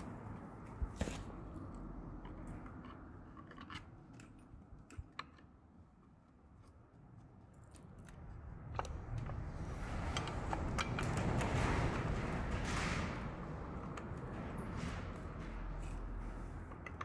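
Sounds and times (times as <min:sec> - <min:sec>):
rustling scrape: 0:00.8 - 0:01.6
screwdriver clicking and scraping metal: 0:02.2 - 0:05.8.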